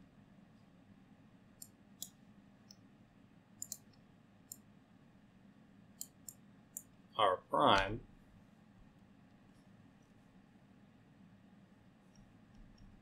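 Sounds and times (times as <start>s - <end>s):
faint sharp mouse clicks: 1.6s - 2.8s, 3.6s - 4.7s, 6.0s - 6.9s.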